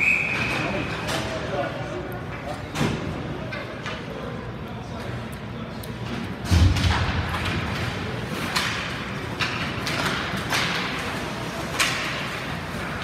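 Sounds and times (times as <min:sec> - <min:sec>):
skates and sticks scraping ice: 0:07.3 - 0:13.0.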